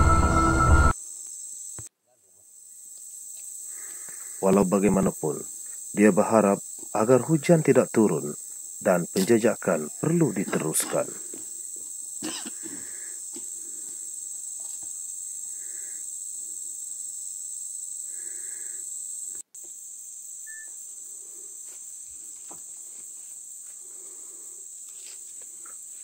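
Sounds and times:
insects droning: 0:00.0 - 0:26.0.

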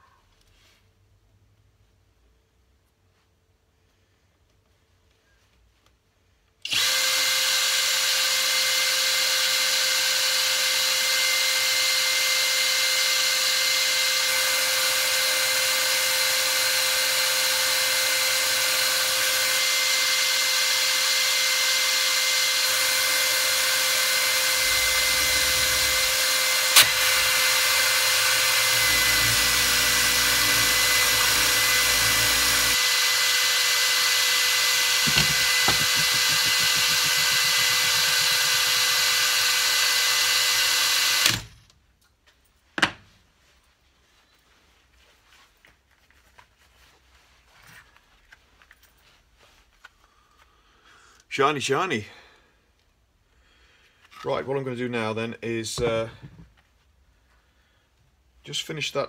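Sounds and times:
cordless drill running: 0:06.6 - 0:41.6.

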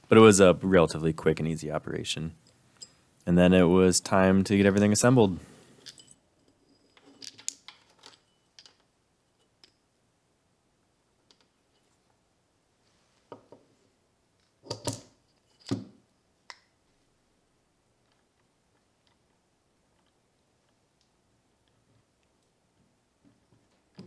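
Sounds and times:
faint clicks and taps of metal parts: 0:05.8 - 0:09.8, 0:11.2 - 0:12.2, 0:13.3 - 0:13.7, 0:18.0 - 0:24.0.

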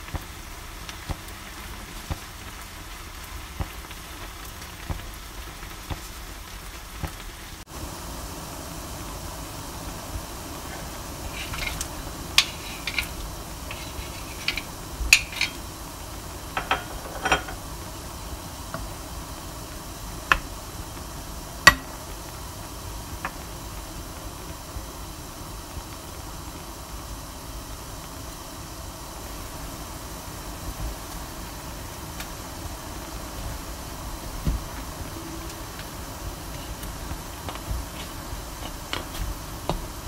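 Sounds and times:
sauce boiling with a hiss: 0:00.0 - 0:40.0
wooden spatula knocking pan: 0:11.3 - 0:15.6, 0:16.6 - 0:17.6, 0:21.7 - 0:22.0.

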